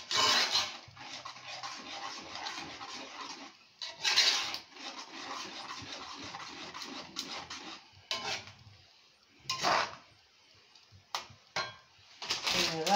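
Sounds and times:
spoon scraping a metal pot: 0:00.0 - 0:08.6, 0:09.5 - 0:10.1.

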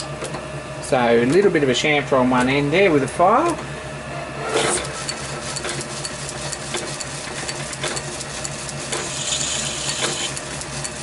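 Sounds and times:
metal lathe humming: 0:02.0 - 0:11.0
file rasping on spinning brass: 0:04.5 - 0:11.0.

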